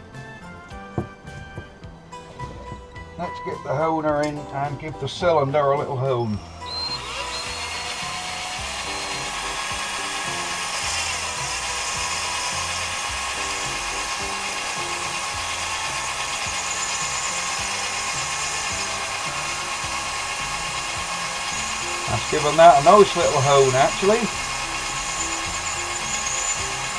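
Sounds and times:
background music with bass line: 0:00.0 - 0:26.9
cordless drill motor whine: 0:05.8 - 0:26.9
hone working against cylinder wall: 0:05.8 - 0:26.9.

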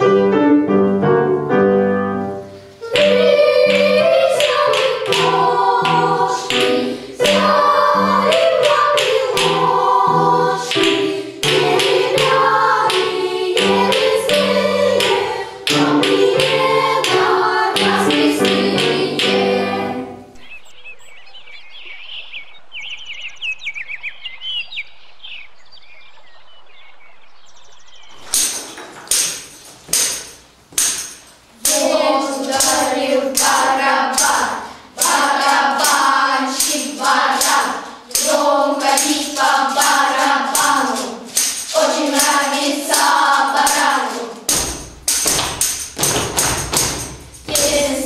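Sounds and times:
steady hiss: 0:01.4 - 0:20.4, 0:28.1 - 0:48.0
children speaking or chanting: 0:02.8 - 0:20.3, 0:31.6 - 0:44.6, 0:47.5 - 0:48.0
birds chirping: 0:20.3 - 0:30.0.

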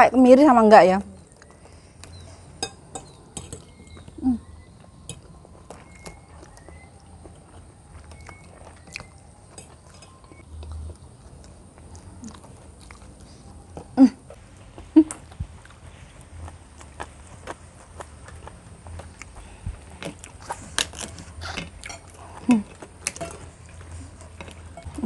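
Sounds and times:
cutlery clinking on plates: 0:02.6 - 0:03.7, 0:23.1 - 0:23.5.

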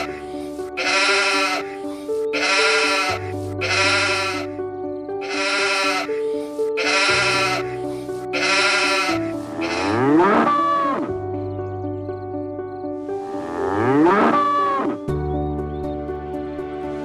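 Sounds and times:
background music: 0:00.0 - 0:17.0
cow mooing: 0:00.8 - 0:01.6, 0:02.4 - 0:04.5, 0:05.2 - 0:06.1, 0:06.8 - 0:07.7, 0:08.4 - 0:11.1, 0:13.4 - 0:15.0
sheep bleating: 0:00.8 - 0:01.7, 0:02.4 - 0:04.5, 0:05.2 - 0:06.1, 0:06.8 - 0:07.8, 0:08.4 - 0:11.0.

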